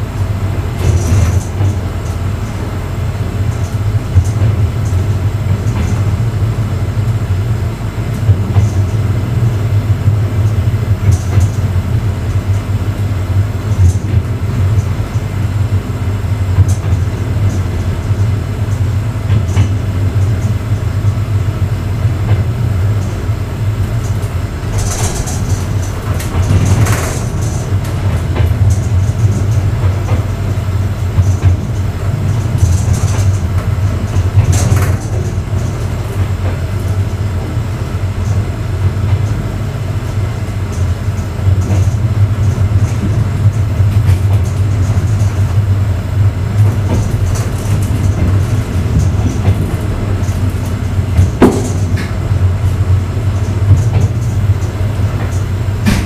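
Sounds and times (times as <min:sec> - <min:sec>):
train wheels rumbling on rails: 0:00.0 - 0:56.0
wheels clicking over rail joints: 0:23.8 - 0:30.6, 0:46.5 - 0:56.0.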